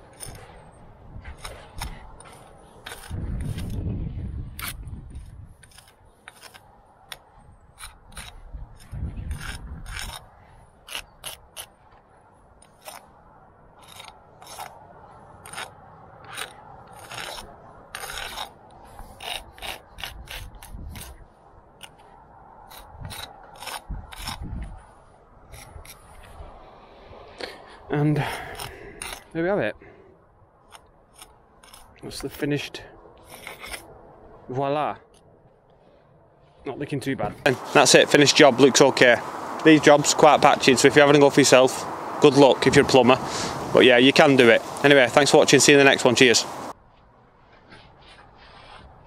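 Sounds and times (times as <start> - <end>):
low rumbles: 0.0 - 44.0
metal jointer scraping mortar: 1.3 - 3.8, 5.6 - 6.6, 7.8 - 10.3, 13.8 - 14.8, 15.4 - 21.2, 22.7 - 24.4, 33.2 - 33.8.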